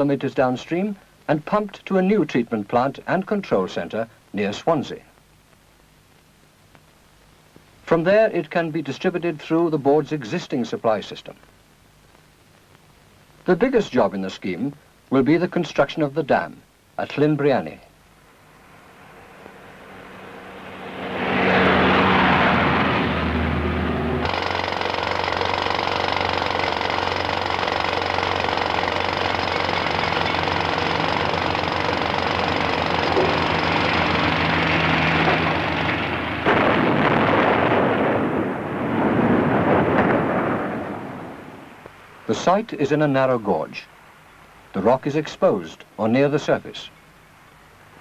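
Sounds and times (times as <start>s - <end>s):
rushing noise: 18.2s - 42.5s
rock blast roar: 18.8s - 41.6s
pneumatic rock drills hammering: 24.2s - 34.2s.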